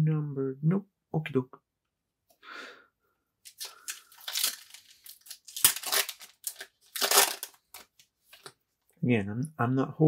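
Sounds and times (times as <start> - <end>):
foil wrapper tearing and crinkling: 3.5 - 8.5.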